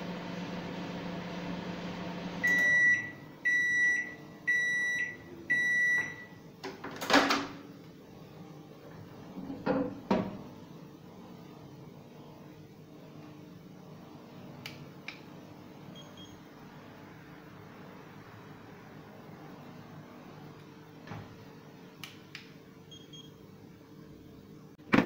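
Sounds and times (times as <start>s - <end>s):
microwave oven humming: 0.0s - 25.0s
microwave beeps: 2.4s - 6.4s, 15.9s - 16.4s, 22.9s - 23.4s.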